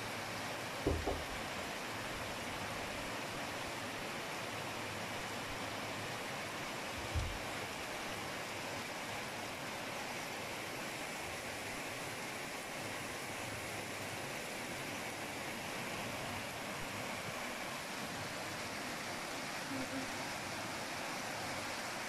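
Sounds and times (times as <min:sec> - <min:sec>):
brief low thump: 0:00.9 - 0:01.4, 0:07.1 - 0:07.4
heavy rain and hail: 0:06.9 - 0:08.2.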